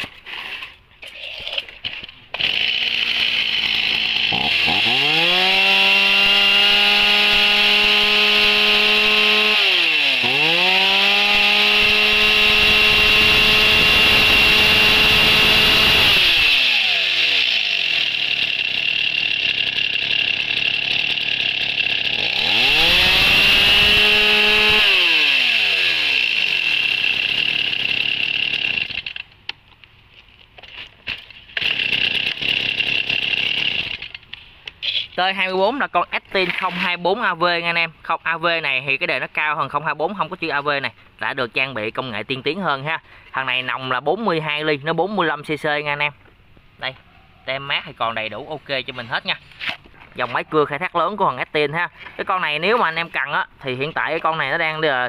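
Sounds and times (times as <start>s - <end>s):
chainsaw revving: 2.3s - 29.3s, 31.6s - 34.2s.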